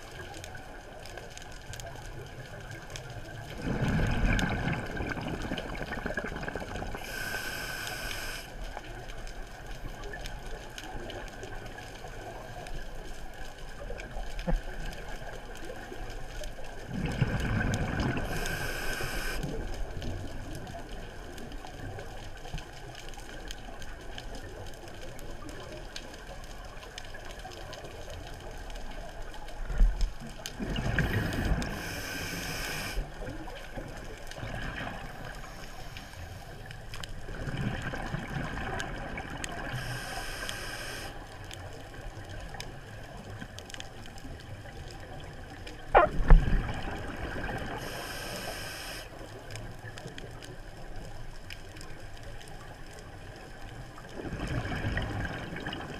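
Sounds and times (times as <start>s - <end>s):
exhaled bubbles underwater: 3.2s - 7.7s, 16.6s - 20.4s, 30.5s - 35.6s, 37.2s - 41.1s, 44.6s - 48.9s, 53.9s - 55.9s
regulator hissing inhale: 7.0s - 8.6s, 18.2s - 19.5s, 31.1s - 33.1s, 35.4s - 36.7s, 39.7s - 41.2s, 47.7s - 49.2s.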